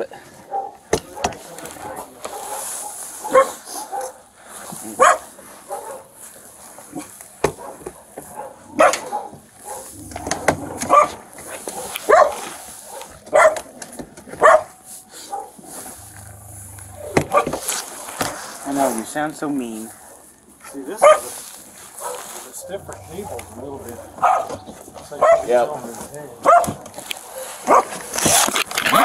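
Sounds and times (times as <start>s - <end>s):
dog barking: 0.5s - 4.3s, 4.9s - 6.2s, 7.0s - 13.7s, 14.4s - 17.7s, 20.9s - 21.4s, 22.0s - 25.7s, 26.4s - 28.1s.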